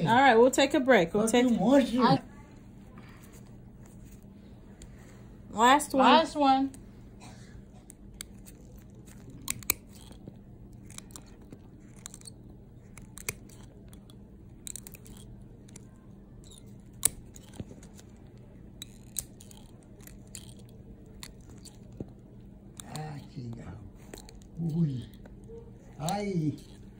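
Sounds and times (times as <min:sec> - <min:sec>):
toenail nippers crunching snaps: 0:07.8 - 0:26.9.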